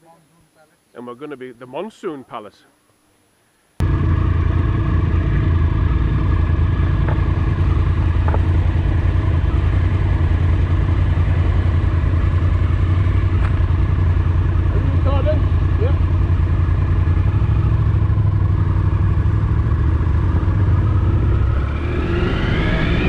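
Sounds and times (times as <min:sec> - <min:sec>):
motorcycle engine idling: 0:03.8 - 0:21.4.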